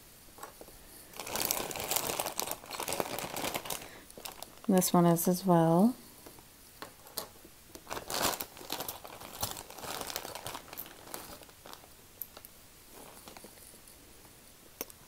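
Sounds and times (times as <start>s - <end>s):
plastic bag crinkling: 0.9s - 5.2s, 7.1s - 13.9s.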